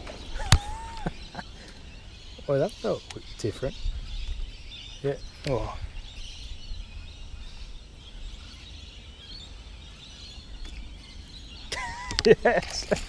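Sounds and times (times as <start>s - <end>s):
faint bird chirps: 0.0s - 12.9s
wind rumble on microphone: 3.0s - 13.0s.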